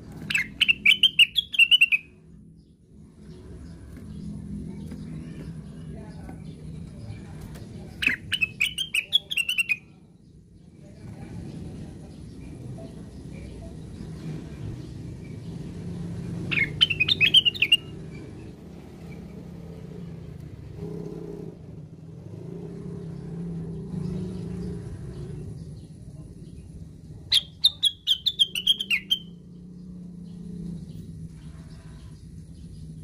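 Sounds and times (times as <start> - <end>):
low steady rumble: 0.0 - 9.2, 9.8 - 33.0
bird chattering: 0.2 - 2.2, 7.9 - 9.9, 16.4 - 18.0, 27.2 - 29.6.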